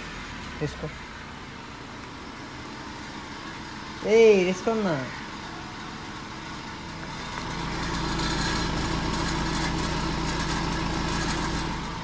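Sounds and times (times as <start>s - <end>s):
car engine idling: 0.0s - 12.0s
car exhaust revving: 5.3s - 12.0s.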